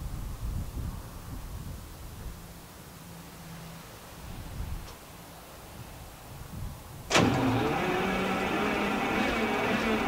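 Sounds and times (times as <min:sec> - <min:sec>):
diesel engine running: 0:07.1 - 0:10.0.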